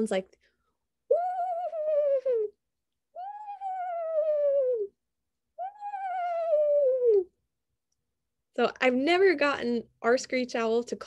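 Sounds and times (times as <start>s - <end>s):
woman imitating owl calls: 1.1s - 2.6s, 3.2s - 5.0s, 5.6s - 7.4s.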